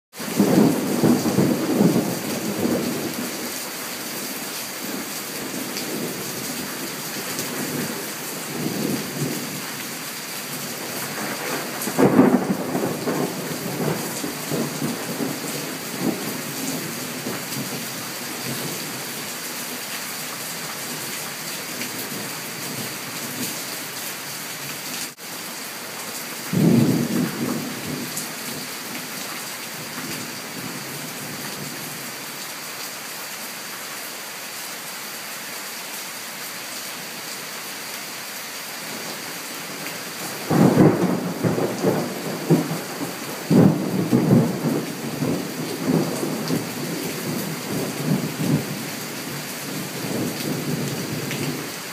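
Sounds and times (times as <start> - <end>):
heavy rain on trees: 0.1 - 51.9
rolling thunder with cracks: 0.3 - 3.4, 10.8 - 17.8, 26.5 - 28.6, 39.7 - 51.6
thunder clap and rumble: 0.4 - 3.4, 11.0 - 17.8, 26.5 - 28.1, 39.7 - 51.6.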